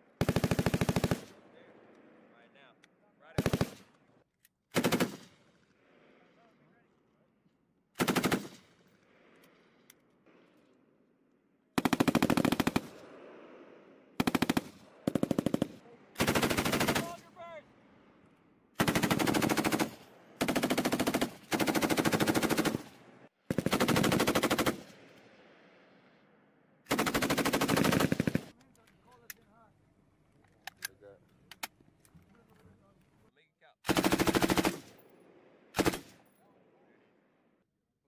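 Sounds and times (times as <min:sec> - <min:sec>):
machine gun bursts: 0:33.9 - 0:34.9.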